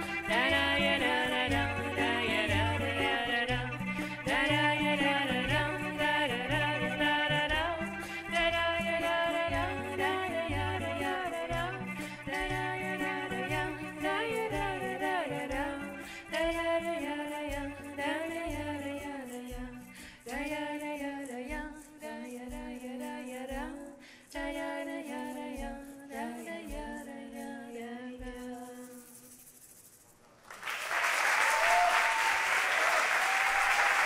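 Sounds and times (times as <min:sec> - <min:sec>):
plucked cello: 0:00.0 - 0:20.5
woman singing: 0:00.0 - 0:29.4
audience applause: 0:30.4 - 0:34.0.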